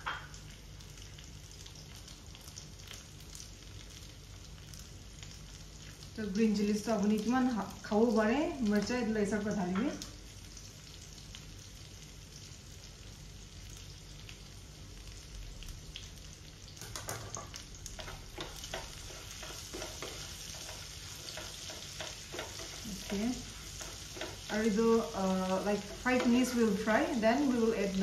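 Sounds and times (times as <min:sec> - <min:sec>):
pork sizzling in a pan: 0:00.0 - 0:28.0
utensils clicking and scraping a pan: 0:16.8 - 0:27.7.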